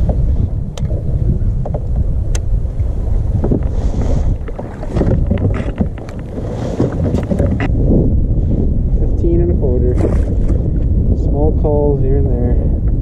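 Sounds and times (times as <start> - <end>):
water sloshing around kayak: 0.0 - 8.8, 9.7 - 11.2
wind buffeting microphone: 0.0 - 13.0.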